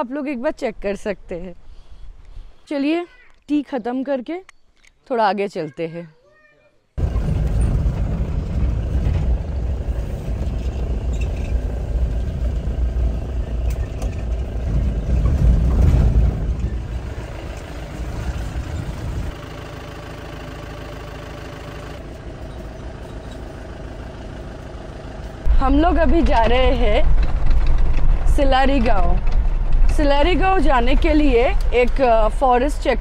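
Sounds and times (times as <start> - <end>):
car engine rumble in cabin: 7.0 - 33.0.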